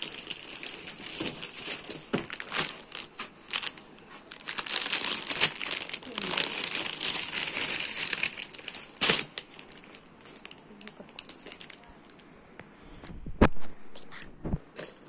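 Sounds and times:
plastic packaging crinkling: 0.0s - 12.2s.

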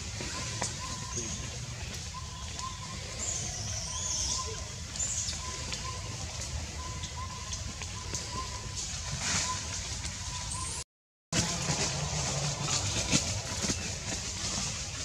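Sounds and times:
bird chirping call: 0.2s - 8.8s.

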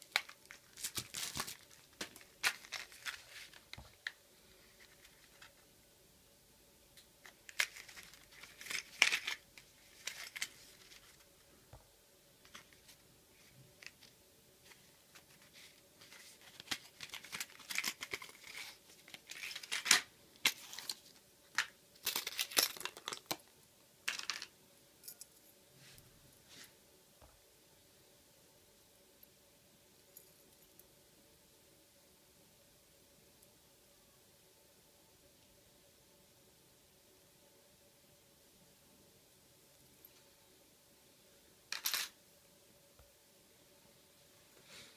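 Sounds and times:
plastic packaging crinkling and tearing: 0.0s - 4.0s, 7.5s - 11.1s, 16.1s - 21.1s.

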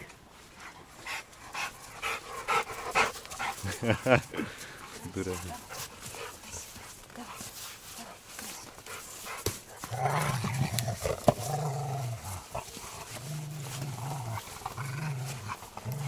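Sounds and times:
dog growling low: 9.8s - 16.0s.

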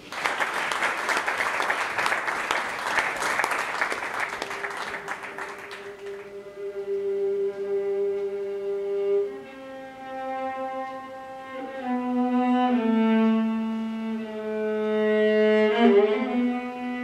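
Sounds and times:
violin playing slow melody: 5.7s - 17.0s.

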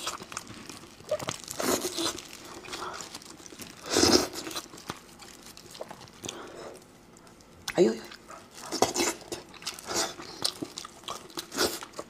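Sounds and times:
meat being torn: 0.0s - 6.5s.

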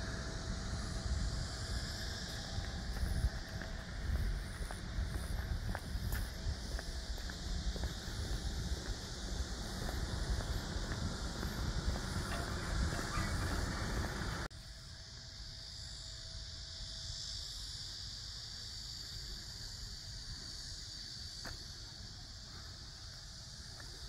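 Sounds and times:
low rumble: 0.0s - 14.5s
wind buffeting microphone: 0.0s - 14.5s
insects droning: 0.0s - 24.0s.

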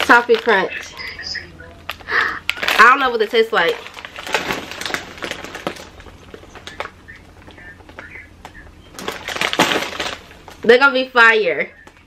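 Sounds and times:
plastic bags rustling and crinkling: 0.0s - 8.2s, 8.9s - 10.7s.

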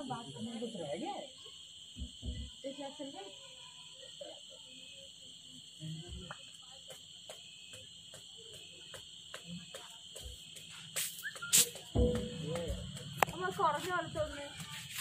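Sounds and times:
crickets trilling: 0.0s - 15.0s
faint regular pulse: 1.4s - 15.0s
sharp knocks: 11.9s - 13.4s.

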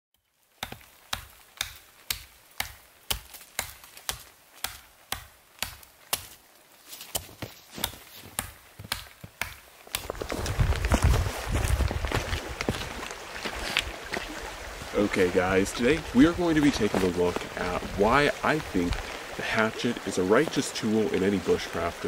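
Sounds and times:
hatchet chopping wood: 0.6s - 6.4s, 7.1s - 10.1s.

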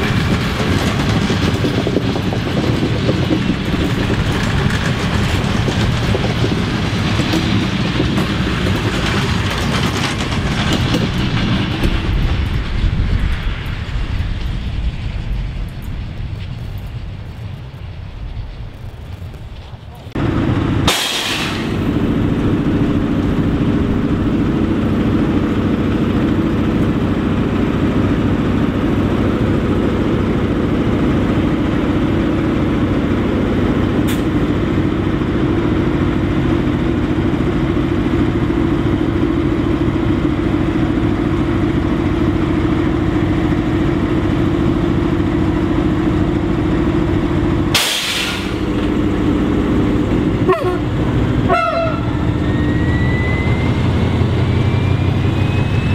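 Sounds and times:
locomotive diesel engine drone: 0.0s - 55.9s
burst of hiss: 20.9s - 21.8s, 47.8s - 48.7s.

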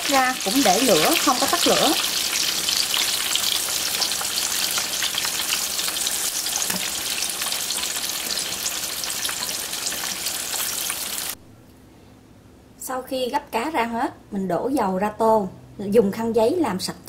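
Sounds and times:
fish deep-frying in oil: 0.0s - 11.4s.

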